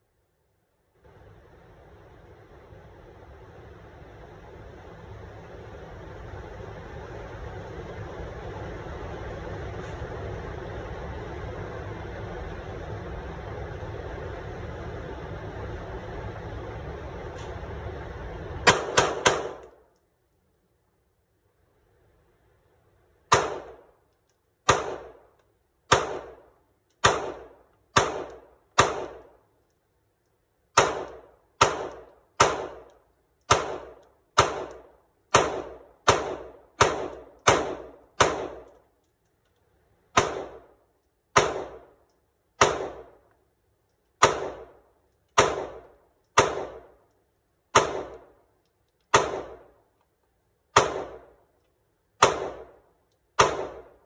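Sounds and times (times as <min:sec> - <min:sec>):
pistol shots echoing indoors: 0:18.7 - 0:19.7, 0:50.7 - 0:51.4, 0:52.2 - 0:52.8, 0:53.4 - 0:54.0.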